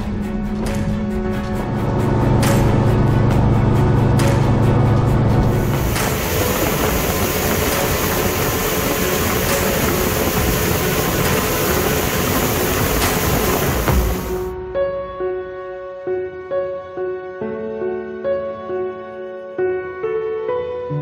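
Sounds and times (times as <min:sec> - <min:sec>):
wind and water rushing: 0:05.5 - 0:14.5
outboard motor running: 0:05.6 - 0:14.5.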